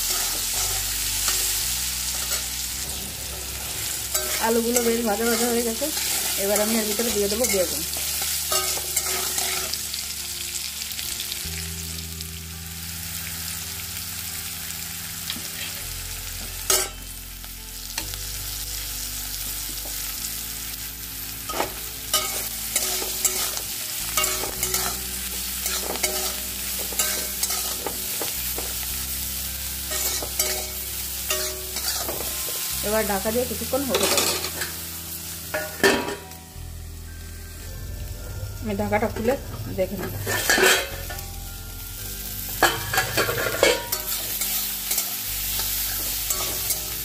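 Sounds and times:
metal spatula scraping pan: 0.0s - 9.8s, 24.2s - 28.3s, 29.9s - 32.6s, 40.0s - 41.3s, 42.6s - 47.0s
vegetables sizzling in oil: 0.0s - 47.0s.

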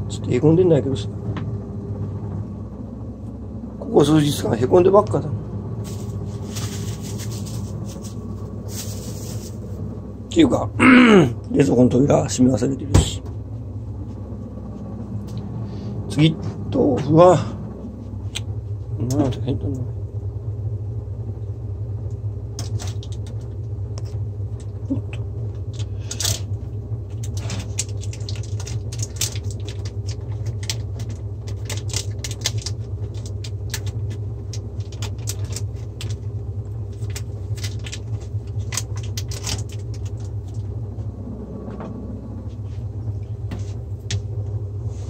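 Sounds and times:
steady low hum: 0.0s - 45.0s
plastic film crackling: 5.8s - 9.8s, 27.1s - 40.6s.

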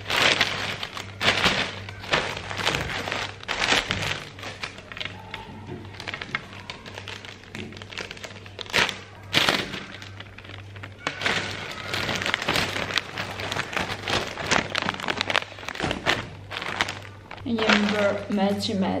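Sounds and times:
packaging crinkling and clicks: 0.0s - 18.6s.

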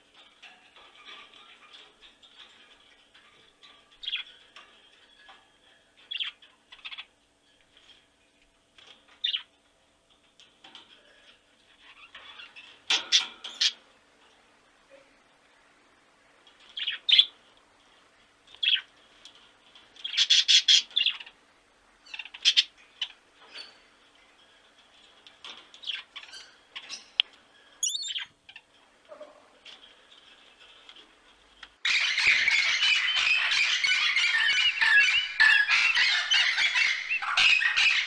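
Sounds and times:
lorikeet squawking and chirping: 27.8s - 28.3s, 31.9s - 38.0s.

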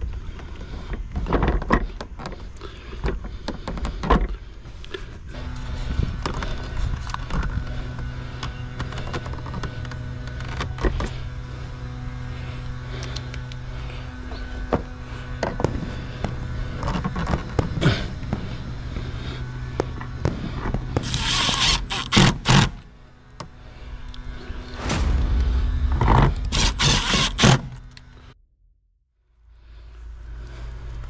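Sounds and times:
steady background hum: 0.0s - 31.0s
loud rushing noise: 24.7s - 28.4s.

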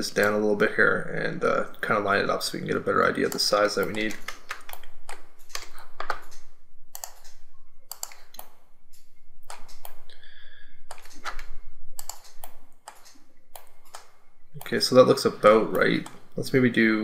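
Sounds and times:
mouse and keyboard clicks: 3.3s - 10.0s, 10.9s - 14.8s.

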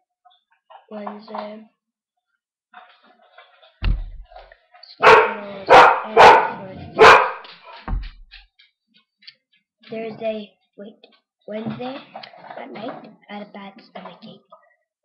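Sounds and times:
low thump: 3.8s - 4.4s, 7.8s - 8.4s
dog barking: 5.0s - 7.5s.

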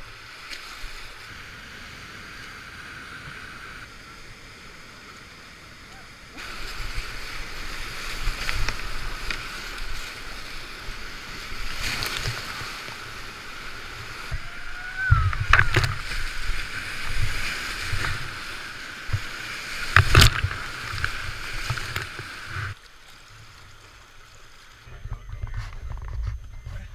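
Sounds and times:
quieter moving water: 0.0s - 26.9s
whitewater rapids rushing: 5.8s - 22.7s.

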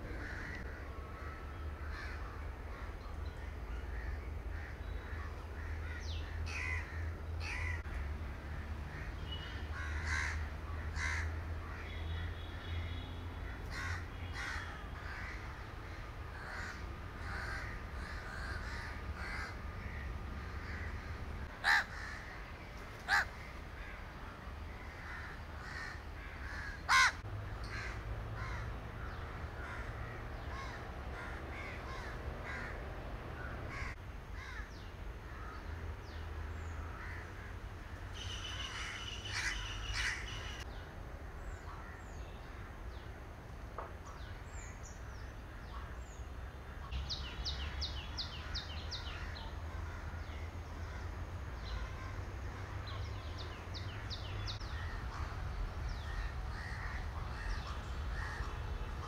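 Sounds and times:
steady low rumble: 0.0s - 9.0s
crows cawing: 0.1s - 2.4s, 3.9s - 7.9s, 8.9s - 11.9s, 13.4s - 22.4s, 23.0s - 24.0s, 24.8s - 32.8s, 33.4s - 35.6s, 38.2s - 40.6s, 56.0s - 58.6s
bird calls: 38.1s - 40.7s.

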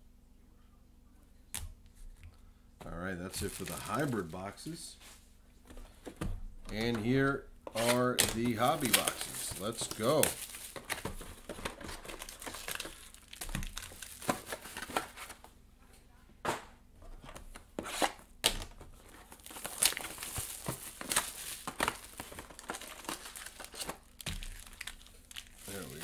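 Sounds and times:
pack wrappers crinkling: 3.3s - 4.8s, 6.7s - 15.4s, 18.4s - 26.0s
cardboard scraping: 17.0s - 18.2s.

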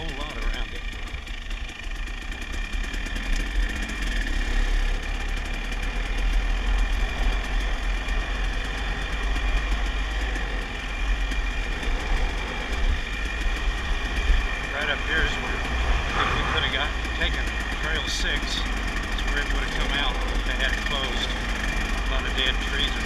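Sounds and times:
dirt bike engine running: 0.0s - 23.0s.

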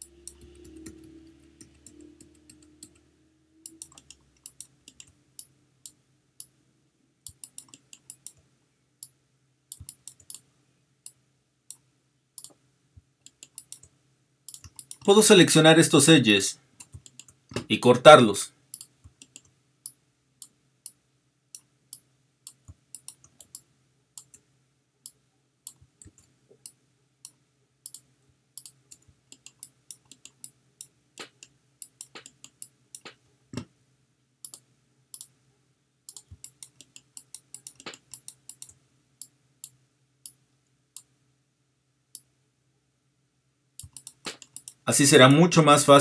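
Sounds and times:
mouse and keyboard clicking: 0.0s - 3.0s, 3.6s - 6.6s, 7.2s - 8.4s, 9.0s - 10.5s, 12.4s - 12.6s, 13.2s - 13.9s, 14.5s - 15.1s, 16.8s - 17.7s, 18.7s - 19.5s, 21.6s - 24.4s, 25.1s - 33.7s, 34.4s - 35.3s, 36.1s - 38.8s, 43.8s - 44.8s
faint low hum: 0.0s - 46.0s.

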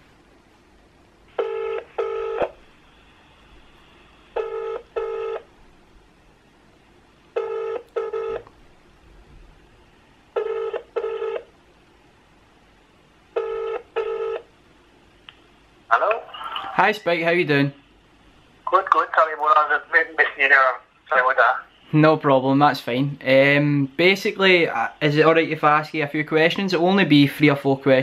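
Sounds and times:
phone ringback tone: 1.4s - 2.5s, 4.4s - 5.4s, 7.4s - 8.4s, 10.4s - 11.5s, 13.4s - 14.4s.

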